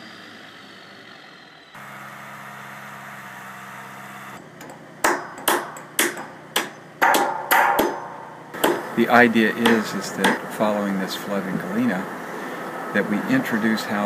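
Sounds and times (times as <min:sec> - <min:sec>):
truck diesel engine running: 0:00.0 - 0:14.0
hammer blows on steel beam: 0:05.1 - 0:10.7.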